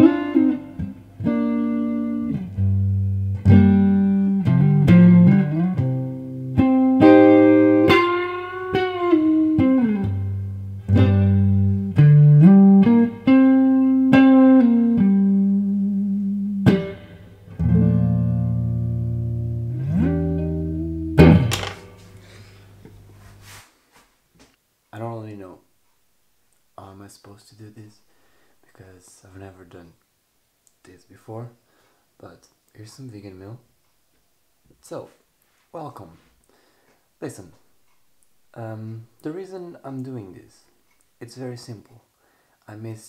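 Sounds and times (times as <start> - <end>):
electric guitar lead notes: 0.0 - 22.2.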